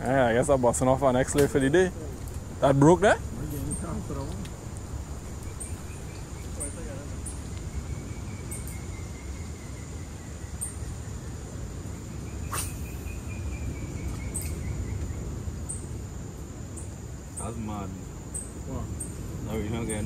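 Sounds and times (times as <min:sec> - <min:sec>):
low rumbling background: 0:00.0 - 0:12.4
high insect chirps: 0:00.0 - 0:20.0
high insect drone: 0:00.0 - 0:20.0.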